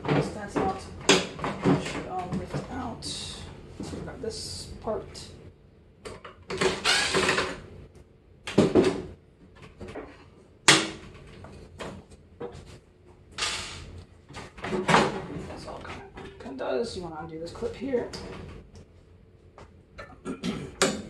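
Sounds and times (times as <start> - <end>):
microwave parts clattering: 0.0 - 2.8, 13.4 - 16.5.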